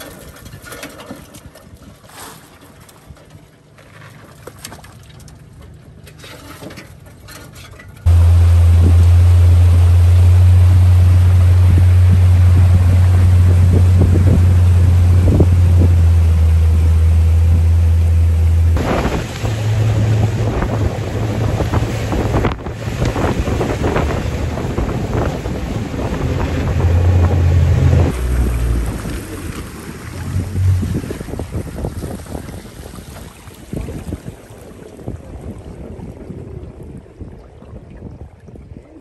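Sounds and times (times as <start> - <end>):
water splashing: 8.0 - 39.0
wind buffeting microphone: 8.0 - 39.0
boat motor droning: 8.1 - 32.3.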